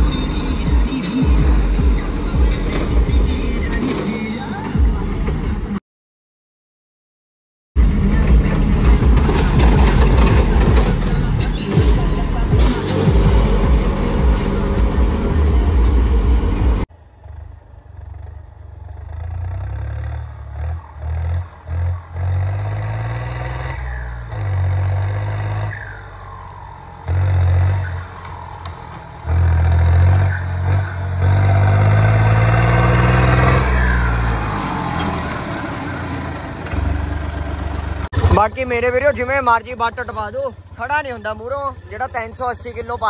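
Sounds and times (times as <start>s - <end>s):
background music: 0.0s - 5.8s, 7.8s - 16.9s
tractor diesel engine revving: 0.0s - 5.8s, 7.8s - 43.0s.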